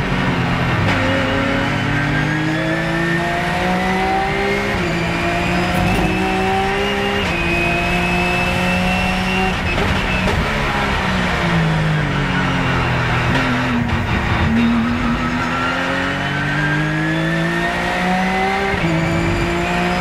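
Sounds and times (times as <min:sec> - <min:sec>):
race car engine upshifting: 0:00.7 - 0:11.6.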